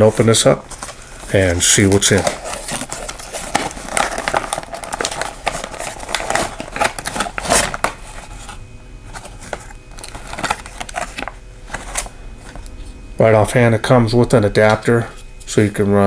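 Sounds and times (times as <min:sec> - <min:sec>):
cardboard box being opened: 0:00.7 - 0:12.6.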